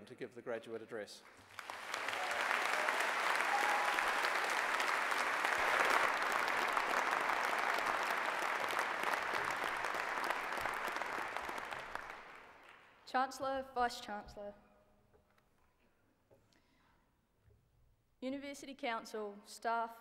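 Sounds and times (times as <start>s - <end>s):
audience applause: 1.4s - 12.9s.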